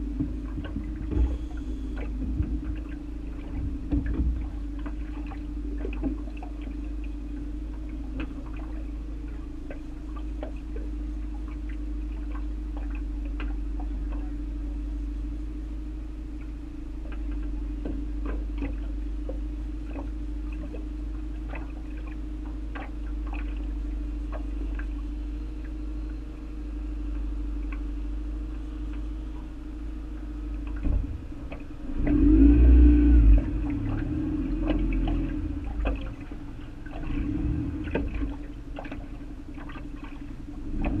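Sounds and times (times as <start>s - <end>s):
boat motor humming: 0.0s - 41.0s
low rumbling noise: 0.0s - 41.0s
water ticking against hull: 0.0s - 41.0s.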